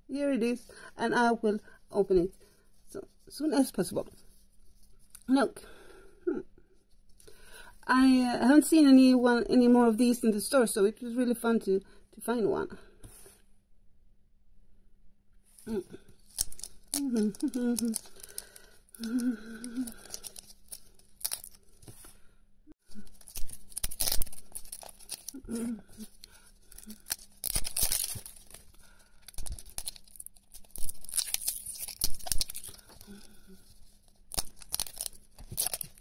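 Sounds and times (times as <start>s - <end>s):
plastic shrink wrap crinkling: 16.2s - 22.0s, 22.9s - 36.0s.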